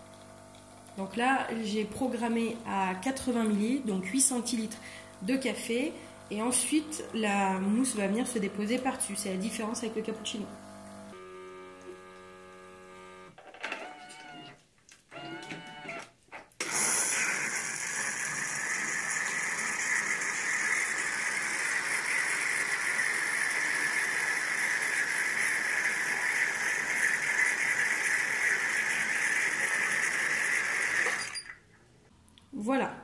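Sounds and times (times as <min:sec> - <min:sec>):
milk frother hissing: 0:16.6 - 0:31.5.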